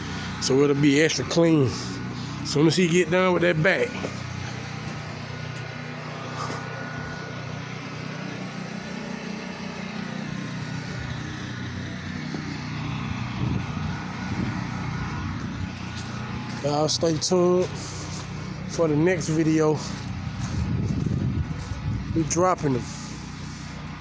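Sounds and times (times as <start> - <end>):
pressure washer engine running: 0.0 - 24.0.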